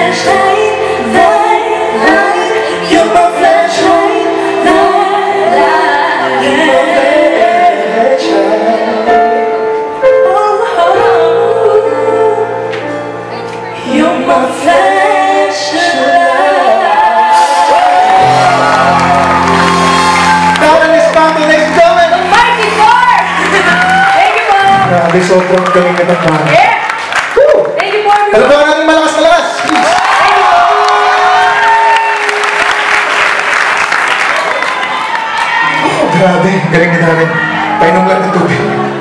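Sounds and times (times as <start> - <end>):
live band playing: 0.0 - 29.3, 29.9 - 39.0.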